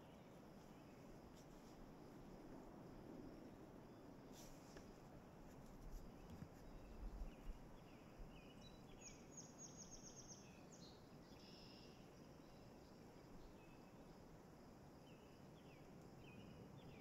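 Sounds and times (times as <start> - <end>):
faint songbird calls: 6.0 - 14.1.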